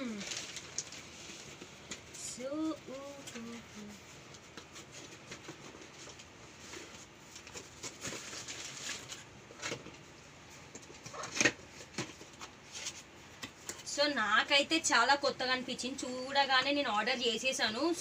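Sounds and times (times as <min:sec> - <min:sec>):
cardboard scraping and rustling: 0:04.5 - 0:10.0.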